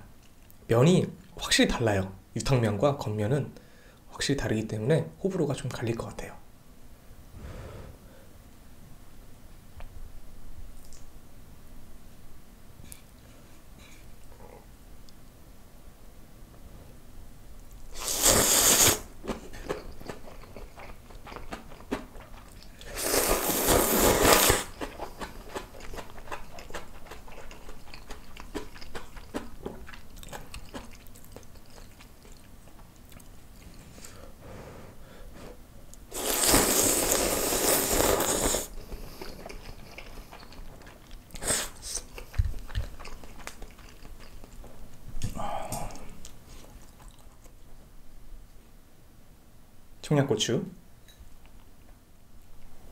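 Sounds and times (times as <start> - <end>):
chewing: 17.7 - 34.2, 35.9 - 47.6
person slurping noodles: 17.9 - 19.9, 22.6 - 28.8, 33.9 - 40.4, 41.4 - 42.1.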